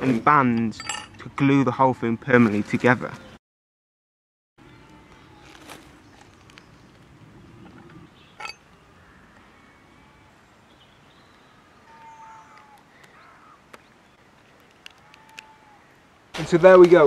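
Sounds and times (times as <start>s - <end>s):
faint birds calling: 4.6s - 16.3s.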